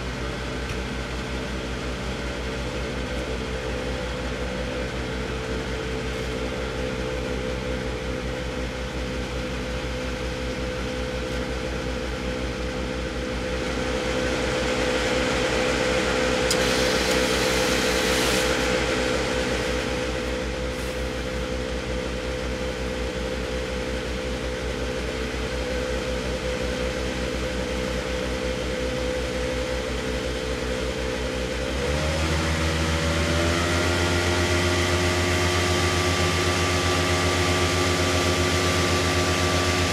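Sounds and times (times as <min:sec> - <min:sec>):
tractor engine running: 0:00.0 - 0:31.6
hose discharging with rushing hiss: 0:16.5 - 0:21.4.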